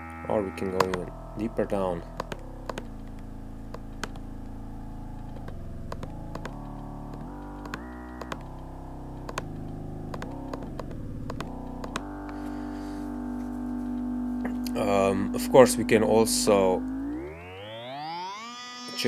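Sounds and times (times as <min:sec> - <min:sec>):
resonant drone chord gliding: 0:00.0 - 0:19.0
sharp clicks: 0:00.8 - 0:01.1, 0:02.1 - 0:04.6, 0:05.2 - 0:12.4.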